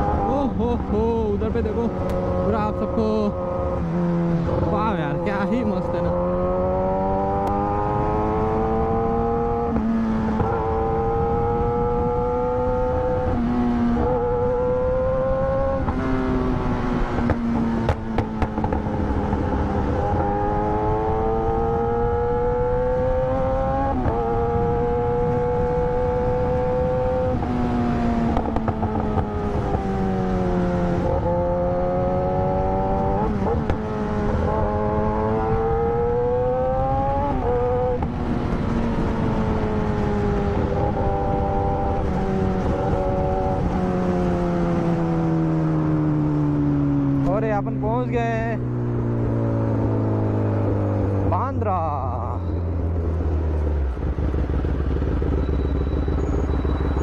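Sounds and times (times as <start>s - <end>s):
wind noise: 0.0s - 47.2s
motorcycle engine running: 13.8s - 23.6s, 52.1s - 57.0s.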